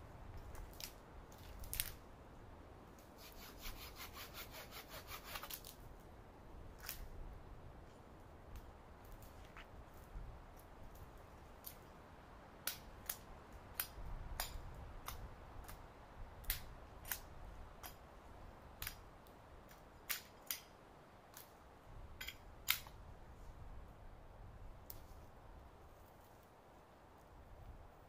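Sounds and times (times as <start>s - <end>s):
dry twigs snapping: 0.4s - 2.0s.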